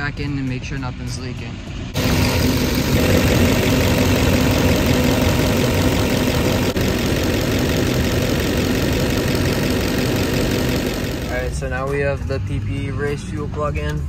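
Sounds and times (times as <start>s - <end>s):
diesel engine idling: 2.0s - 11.8s.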